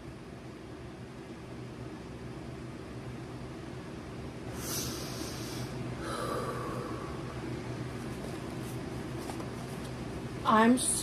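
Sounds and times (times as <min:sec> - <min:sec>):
low room hum: 0:00.0 - 0:11.0
soft breath: 0:04.5 - 0:07.5
woman sighing: 0:04.8 - 0:07.3.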